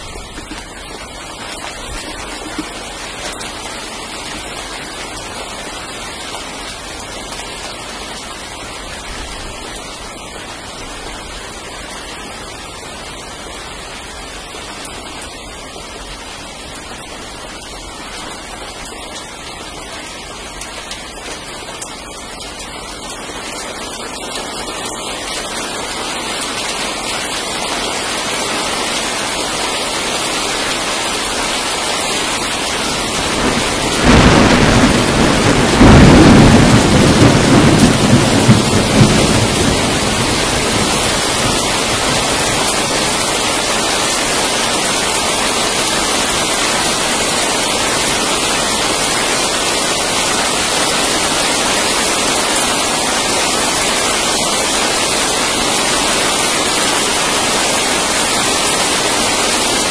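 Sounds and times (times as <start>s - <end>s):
steady rain falling: 0.0s - 59.9s
loud thunder clap: 33.0s - 42.8s.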